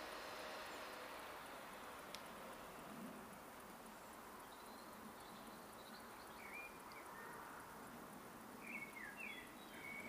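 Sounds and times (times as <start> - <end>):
faint outdoor hiss: 0.0 - 10.0
bird chirps: 3.9 - 7.4, 8.6 - 10.0.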